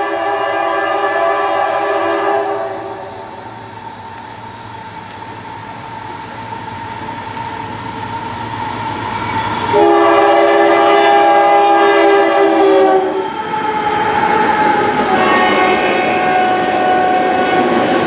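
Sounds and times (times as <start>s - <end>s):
locomotive air horn: 0.0s - 3.1s, 9.7s - 13.4s, 14.0s - 18.0s
train rumble: 0.0s - 18.0s.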